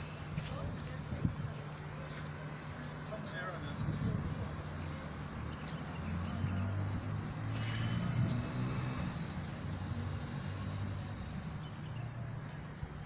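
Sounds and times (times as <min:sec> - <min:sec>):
faint voices: 0:00.0 - 0:08.1
engine humming: 0:00.0 - 0:13.0.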